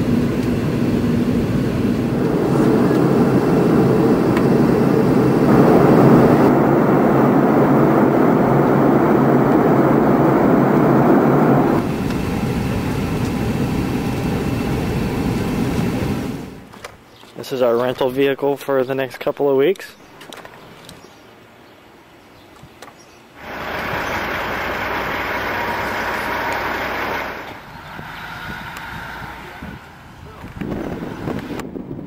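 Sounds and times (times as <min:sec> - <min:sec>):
airliner cabin noise: 0:00.0 - 0:17.0, 0:23.4 - 0:32.0.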